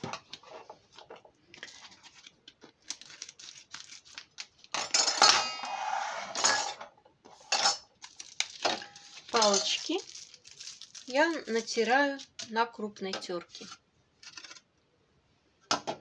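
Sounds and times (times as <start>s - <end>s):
plastic packet rustling: 1.6s - 4.8s, 8.0s - 12.5s
metal utensils clattering: 4.8s - 5.6s, 6.3s - 6.9s, 7.5s - 7.9s, 8.6s - 10.0s.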